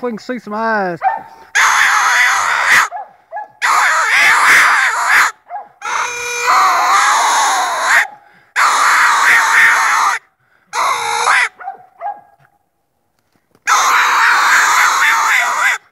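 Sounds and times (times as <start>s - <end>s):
hound baying: 1.0s - 10.2s, 10.8s - 12.6s.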